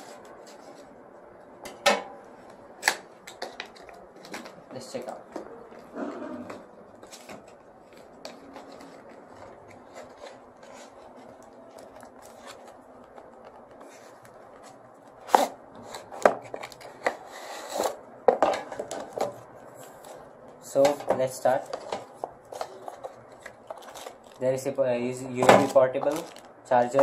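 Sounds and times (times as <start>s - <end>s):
plastic bag rustling: 21.5s - 27.0s.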